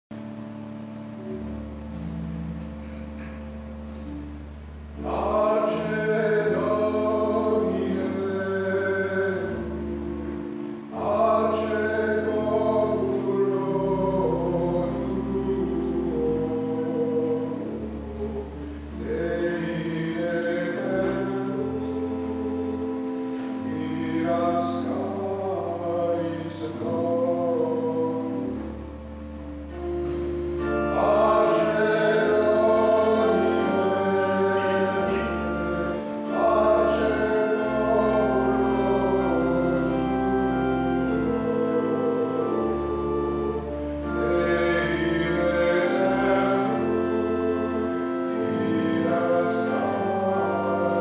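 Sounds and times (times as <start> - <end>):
long held low chords: 0.1 - 51.0
choir singing sacred music: 0.2 - 51.0.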